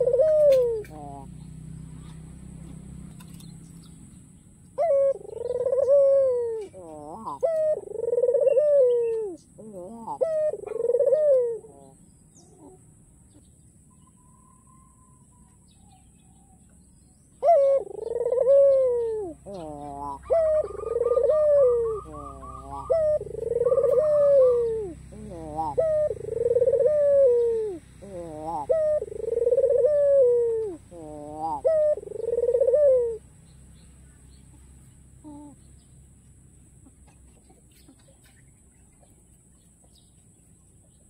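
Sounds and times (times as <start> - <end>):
dove cooing: 0.0 - 3.4, 4.7 - 12.9, 17.4 - 33.3, 35.2 - 35.7.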